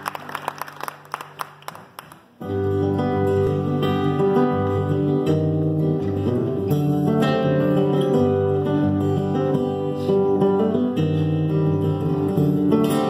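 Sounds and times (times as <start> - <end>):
applause: 0.0 - 2.4
acoustic guitars playing: 0.1 - 13.0.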